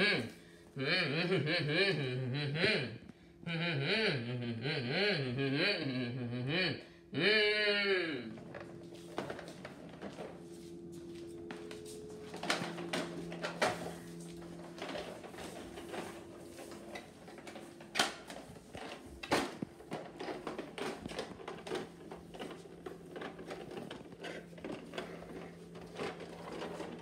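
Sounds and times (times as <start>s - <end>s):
steady low hum: 0.0s - 27.0s
small clicks and rattles: 12.3s - 27.0s.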